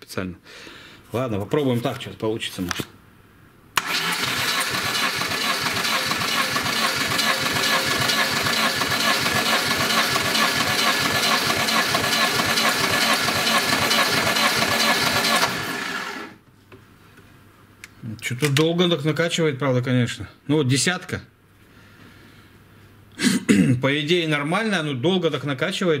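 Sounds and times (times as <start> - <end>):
starter motor cranking engine: 3.8 - 16.4.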